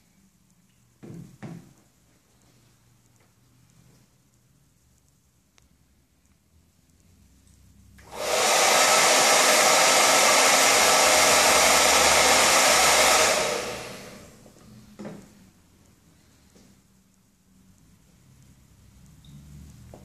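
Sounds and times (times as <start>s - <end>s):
hair dryer blowing: 8.0s - 14.5s.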